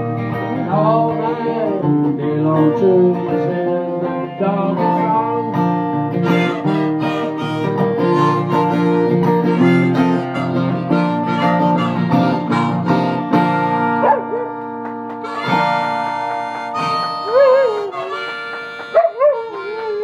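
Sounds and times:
acoustic guitar strumming: 0.0s - 20.0s
harmonica playing chords: 3.1s - 20.0s
dog howling: 17.2s - 18.2s, 18.9s - 20.0s.

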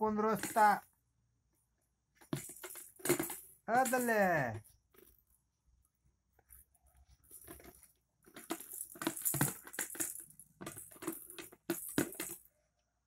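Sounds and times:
plastic tub rattling and clattering: 0.3s - 0.8s, 2.2s - 4.1s, 7.3s - 12.4s.

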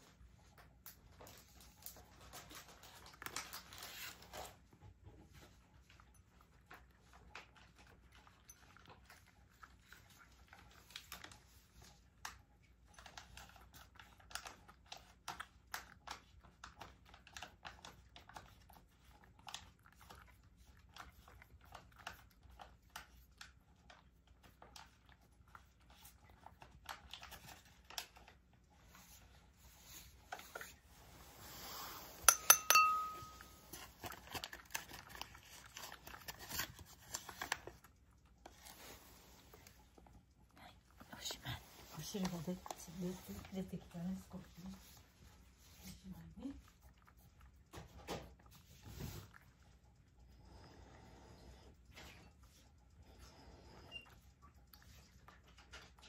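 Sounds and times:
cat eating from a bowl: 0.0s - 56.0s
sharp clinks on a bowl: 32.3s - 33.6s.

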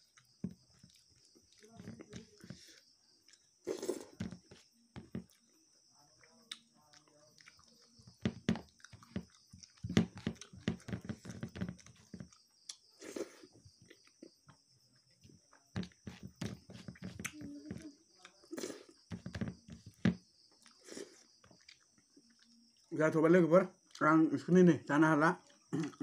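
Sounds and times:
man chewing and lip-smacking: 0.0s - 5.6s, 6.2s - 14.6s, 20.5s - 22.9s, 25.4s - 26.0s
faint high-pitched hiss: 0.0s - 26.0s.

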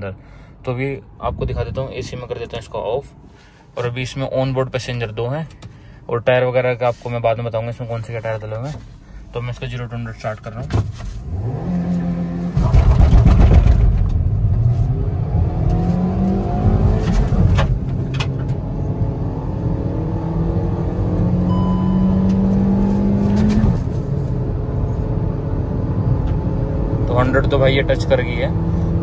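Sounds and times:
car engine accelerating: 11.2s - 29.0s.

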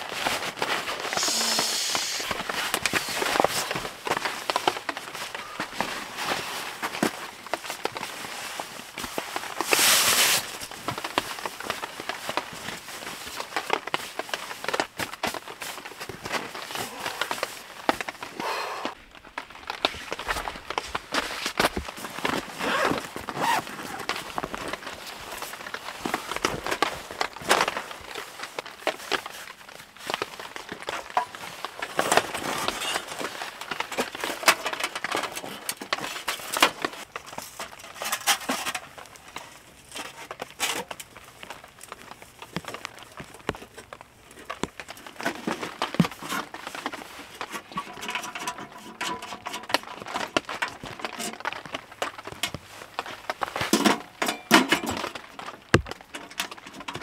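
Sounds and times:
fabric bag rustling: 0.1s - 18.4s, 19.0s - 34.2s
thin metal panels clinking: 47.6s - 50.1s.

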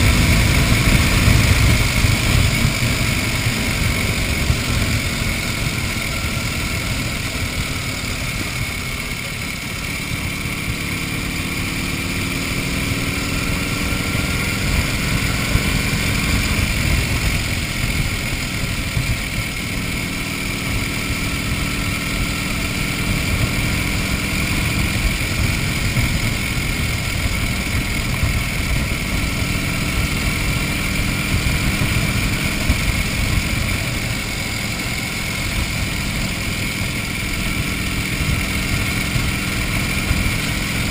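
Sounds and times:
wind rumble on microphone: 0.0s - 7.2s
motorcycle engine running: 0.0s - 40.9s.

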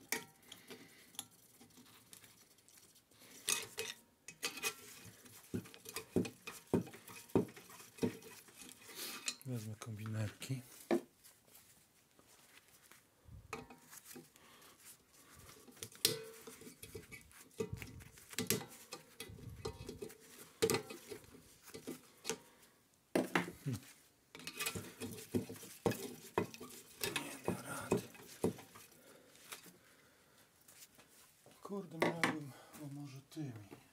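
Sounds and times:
pliers scraping metal: 3.4s - 5.1s, 24.4s - 28.3s.

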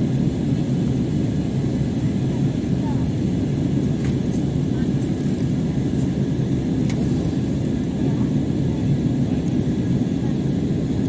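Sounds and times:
airliner cabin rumble: 0.0s - 11.0s.

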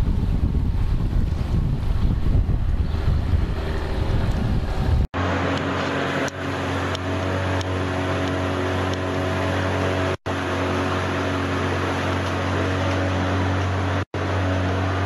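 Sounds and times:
wind buffeting microphone: 0.0s - 5.1s
outboard motor running: 0.0s - 15.0s
water rushing: 0.0s - 15.0s.

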